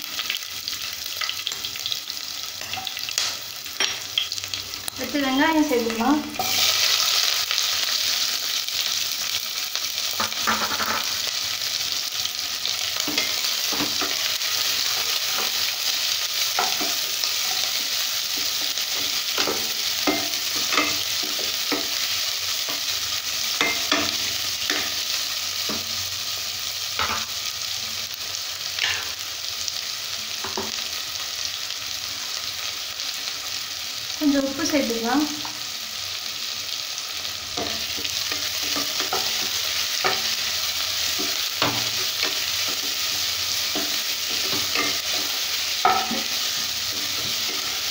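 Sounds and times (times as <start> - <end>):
onions sizzling in oil: 0.0 - 47.9
spatula scraping and tapping: 37.6 - 40.3.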